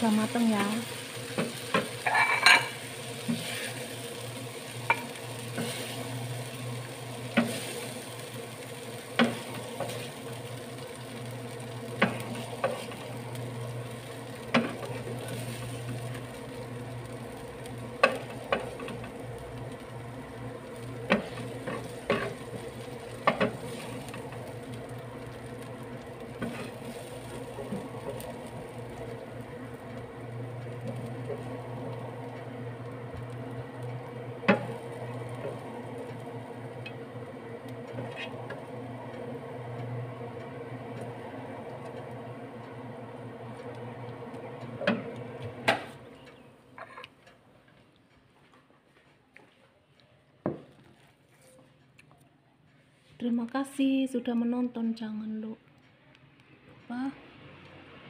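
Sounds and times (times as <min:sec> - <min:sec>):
hot oil sizzling: 0:00.0 - 0:47.0
wooden spatula scraping frying pan: 0:01.3 - 0:04.0, 0:07.3 - 0:07.9, 0:21.0 - 0:24.4, 0:26.3 - 0:28.3.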